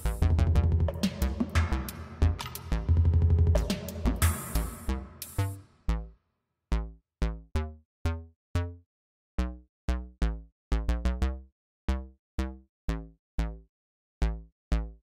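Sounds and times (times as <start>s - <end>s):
drum machine beat: 0.0s - 5.6s.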